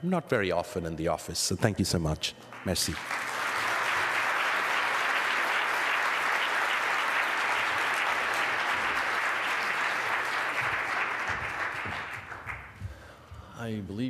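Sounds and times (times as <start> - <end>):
people applauding: 2.5 - 12.9.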